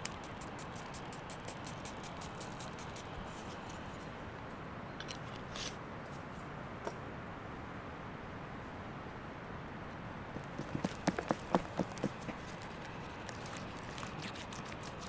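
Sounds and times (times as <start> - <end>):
steady low hiss: 0.0 - 15.0
stick stirring dry mix in bowl: 10.6 - 15.0.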